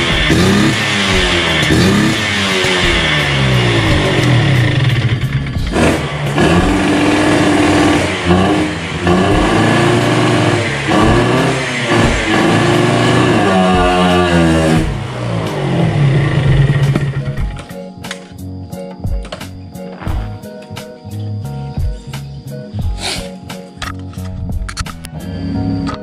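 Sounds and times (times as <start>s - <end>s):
two-stroke motorcycle engine revving: 0.0s - 17.6s.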